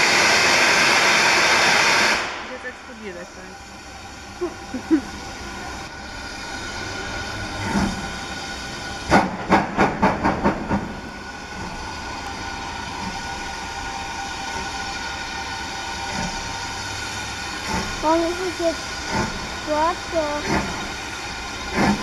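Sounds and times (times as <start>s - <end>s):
locomotive exhaust chuffs: 0.0s - 22.0s
steam locomotive hissing steam: 0.0s - 22.0s.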